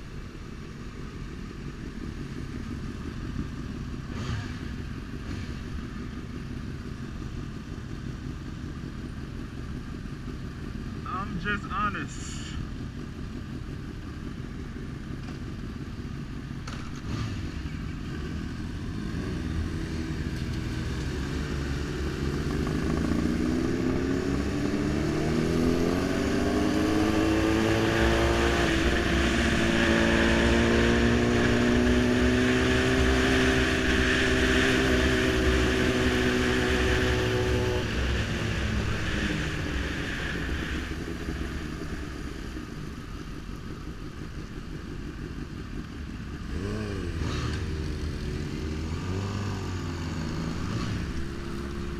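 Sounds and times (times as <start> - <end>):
motorcycle engine accelerating: 1.8 - 11.7, 12.8 - 51.9
rushing wind: 18.8 - 43.2.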